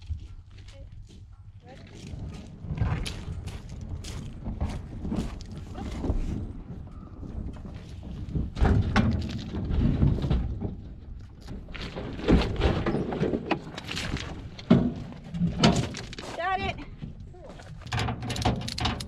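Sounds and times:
plastic tank hollow thumps and scrapes: 0:07.6 - 0:16.1.

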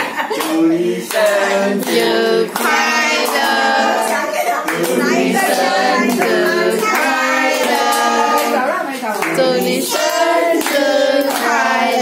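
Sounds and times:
adults and children singing: 0:00.0 - 0:12.0
hands clapping in time: 0:00.3 - 0:03.6.

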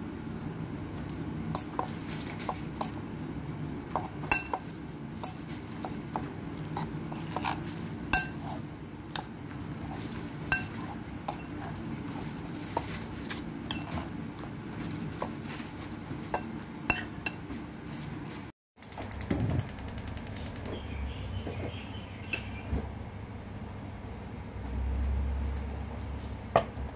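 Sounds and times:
steady low hum: 0:00.0 - 0:26.9
fork scraping ceramic plate: 0:06.8 - 0:08.6.

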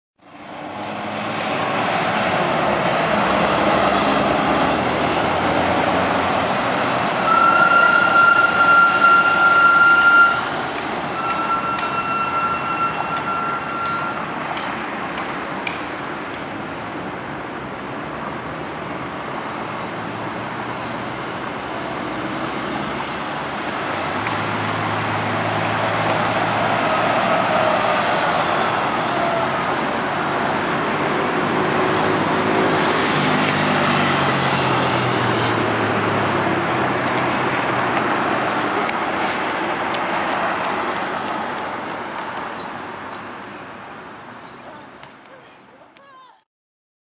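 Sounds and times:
bus engine humming: 0:00.2 - 0:45.0
street traffic: 0:00.2 - 0:46.4
high thin squeal: 0:07.2 - 0:10.5, 0:11.1 - 0:14.3, 0:26.8 - 0:31.2.

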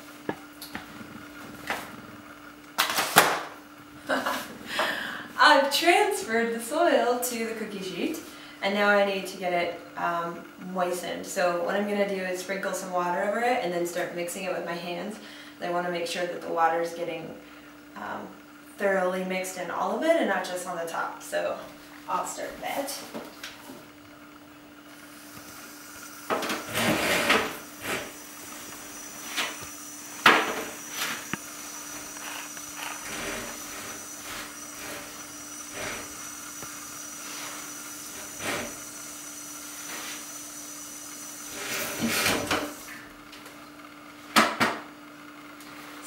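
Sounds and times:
faucet running water: 0:24.9 - 0:43.1.

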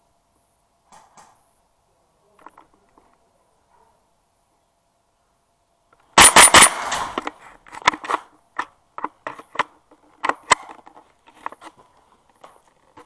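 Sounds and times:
loud sharp cracks: 0:06.1 - 0:08.3.

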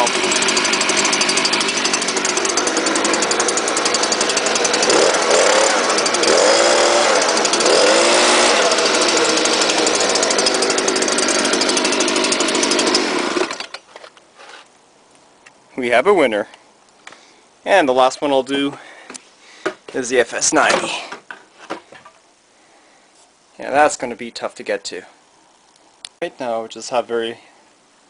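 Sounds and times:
leaf blower running: 0:00.0 - 0:13.8.

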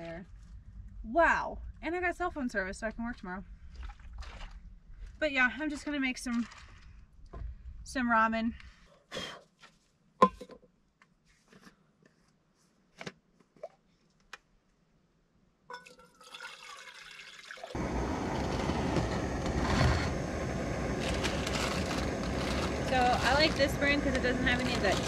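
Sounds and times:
water poured into cup: 0:15.8 - 0:17.8
gas burner hissing: 0:17.8 - 0:25.0.

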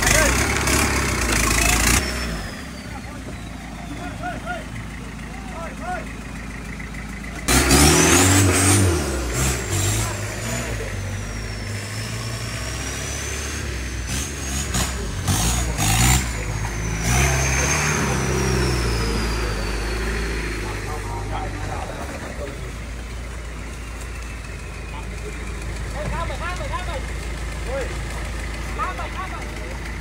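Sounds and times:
engine revving hard: 0:00.0 - 0:03.2, 0:07.4 - 0:24.0.

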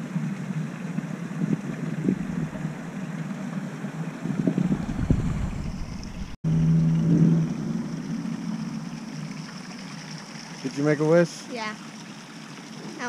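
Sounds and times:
steady hum: 0:01.0 - 0:09.2
wind buffeting microphone: 0:01.3 - 0:03.0, 0:04.1 - 0:06.4.

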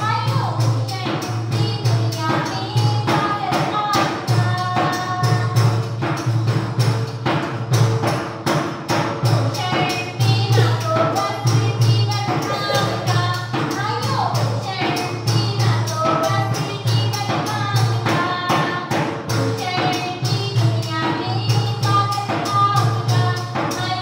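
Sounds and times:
dance music: 0:12.4 - 0:13.3.

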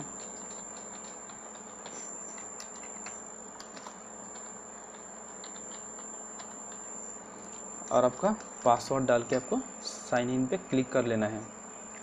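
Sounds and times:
computer keyboard typing: 0:00.0 - 0:06.9
background hiss and hum: 0:00.0 - 0:12.0.

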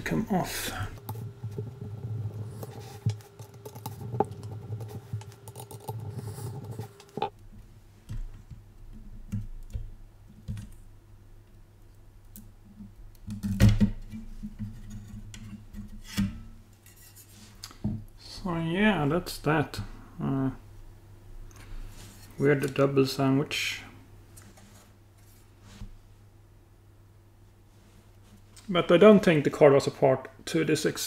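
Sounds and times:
steady hum: 0:00.0 - 0:08.3.

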